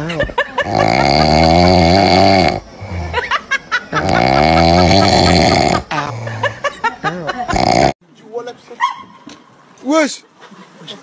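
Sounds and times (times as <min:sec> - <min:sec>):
dog snoring: 0:00.6 - 0:03.2, 0:04.0 - 0:06.3, 0:07.5 - 0:08.0.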